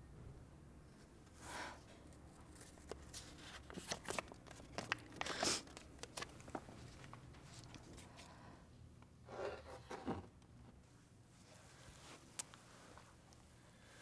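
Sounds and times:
cloth and paper rustling: 2.3s - 8.3s.

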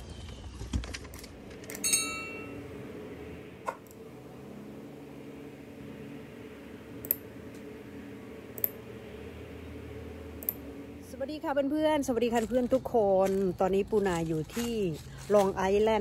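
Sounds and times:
steady low hum: 0.0s - 16.0s
short bright ringing tone: 1.8s - 2.6s.

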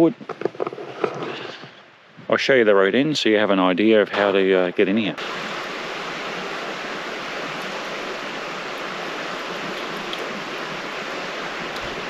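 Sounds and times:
fast-flowing river rushing: 5.2s - 12.0s.

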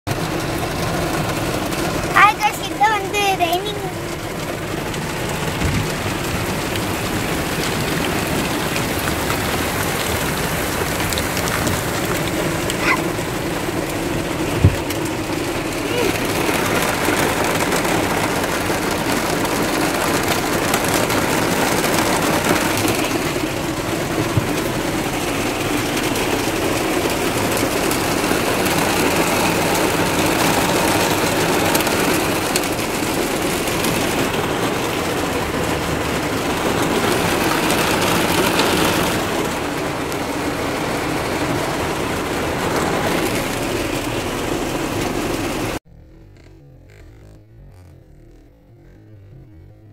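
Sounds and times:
heavy rain on car roof: 0.0s - 45.8s.

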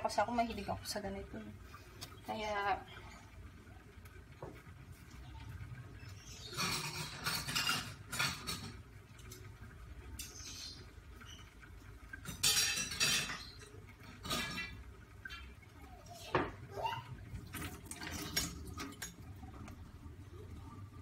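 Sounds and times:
low steady hum: 0.0s - 21.0s
dishes and cutlery clattering: 6.5s - 8.8s, 12.2s - 15.5s.

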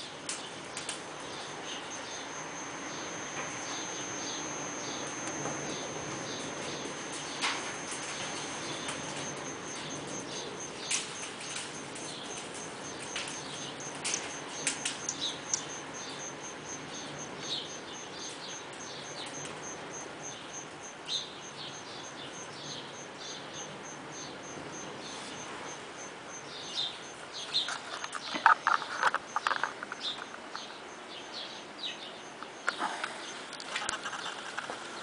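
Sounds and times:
small birds chirping: 0.0s - 35.0s
sharp clicks: 0.2s - 21.0s
faint high-pitched ticking: 0.2s - 27.2s.

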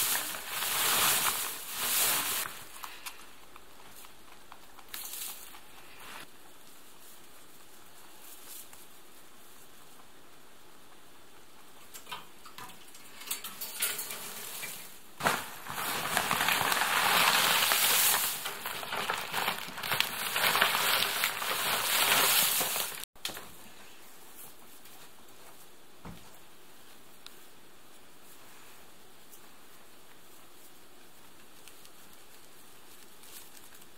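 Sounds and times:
dry hay rustling and crackling: 0.0s - 4.0s, 4.8s - 10.2s, 13.2s - 23.1s, 26.8s - 33.9s.

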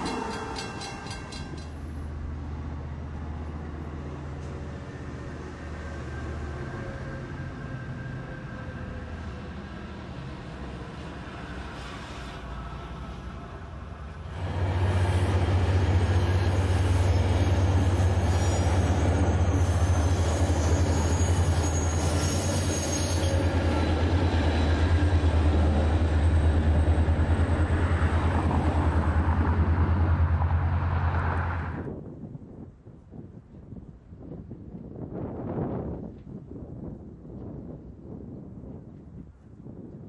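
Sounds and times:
train wheels rumbling on bridge: 0.0s - 8.2s, 9.9s - 31.8s
passing passenger train: 0.0s - 40.0s.

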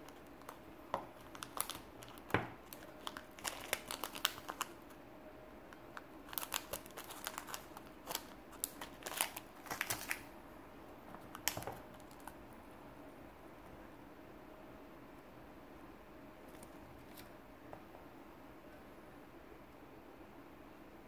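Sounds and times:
plastic bag crinkling: 0.0s - 5.0s, 5.9s - 10.3s, 11.2s - 12.4s.

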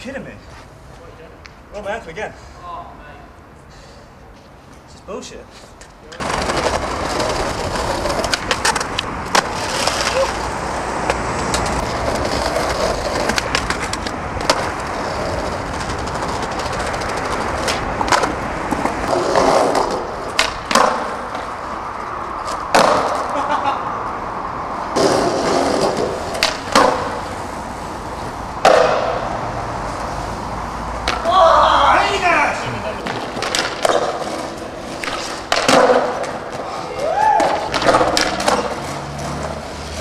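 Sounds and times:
skateboard wheels rolling on paving: 5.5s - 40.0s
skateboard tail popping: 6.2s - 21.6s, 22.4s - 23.4s, 25.0s - 27.5s, 28.6s - 29.3s, 32.9s - 39.6s
skateboard landing clack: 15.8s - 21.5s, 22.6s - 23.4s, 25.0s - 27.2s, 28.6s - 29.2s, 33.0s - 36.6s, 37.4s - 39.5s.

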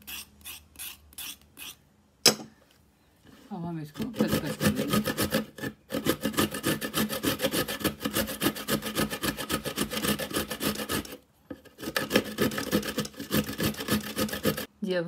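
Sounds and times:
carrot grated on metal grater: 4.0s - 14.7s.

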